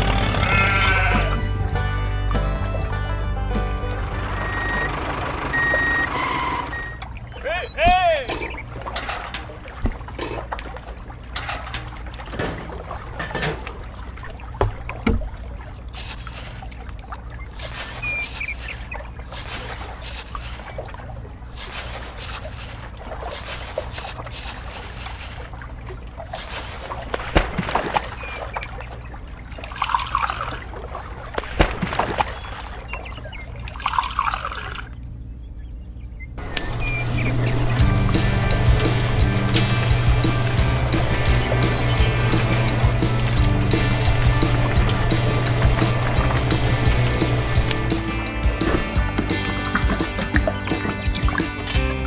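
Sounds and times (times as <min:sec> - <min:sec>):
water trickling: 0:06.9 - 0:35.0, 0:36.4 - 0:47.9
sand rustling: 0:16.0 - 0:16.8, 0:17.4 - 0:20.8, 0:21.5 - 0:25.6, 0:26.3 - 0:28.3, 0:36.7 - 0:48.0.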